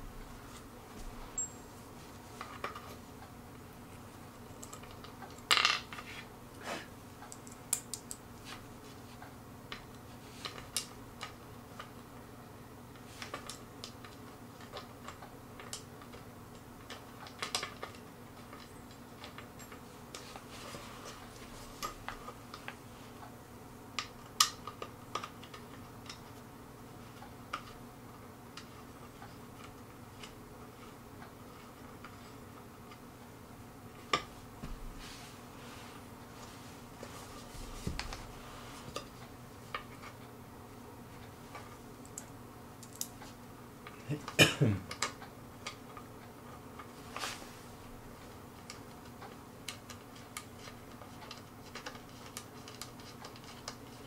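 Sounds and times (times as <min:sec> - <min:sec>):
faint steady hum: 0:00.0 - 0:54.0
metal brackets and screws clinking: 0:01.4 - 0:01.8.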